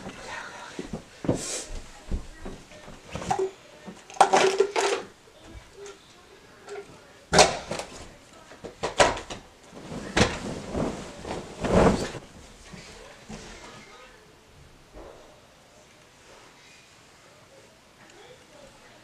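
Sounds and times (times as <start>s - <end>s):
knocks and thuds of handling: 7.3s - 13.6s.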